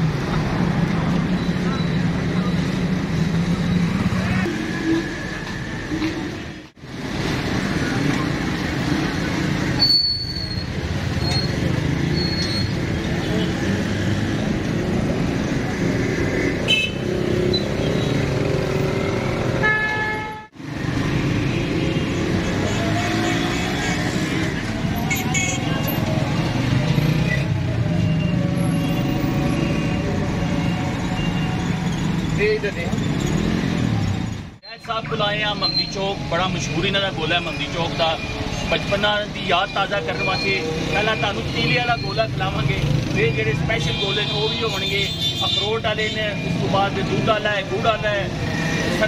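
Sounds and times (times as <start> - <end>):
street traffic noise: 0.0 - 49.0.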